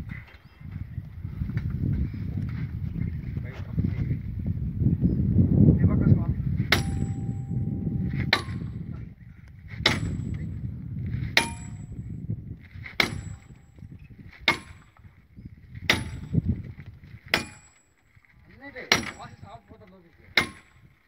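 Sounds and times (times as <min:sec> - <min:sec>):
hammer ringing on steel: 0:06.7 - 0:08.9, 0:11.4 - 0:12.1.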